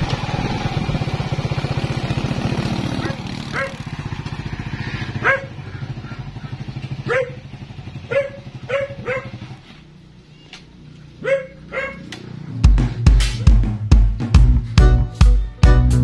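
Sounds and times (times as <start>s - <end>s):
motorcycle engine idling: 0.0s - 11.2s
dog barking: 3.0s - 3.9s, 5.2s - 6.2s, 7.0s - 9.4s, 11.2s - 12.1s.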